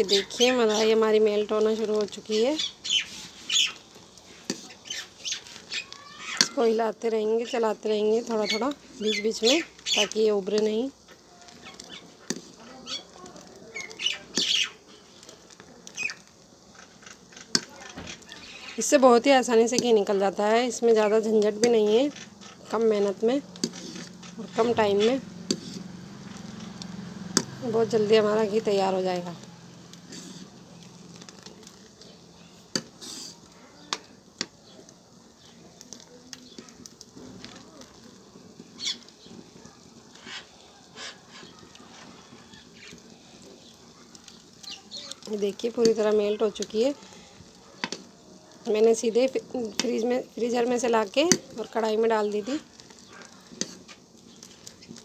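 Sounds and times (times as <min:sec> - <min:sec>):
ladle stirring cream in pan: 0:00.0 - 0:06.8, 0:07.4 - 0:55.0
short hiss of liquid in hot pan: 0:32.9 - 0:33.5.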